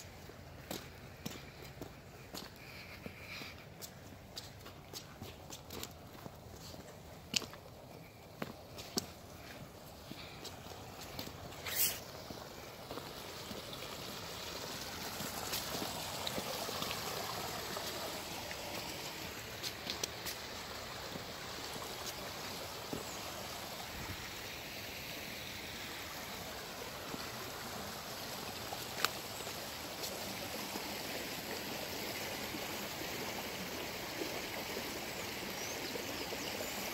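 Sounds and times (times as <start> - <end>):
runoff water running down gully: 0.0 - 36.9.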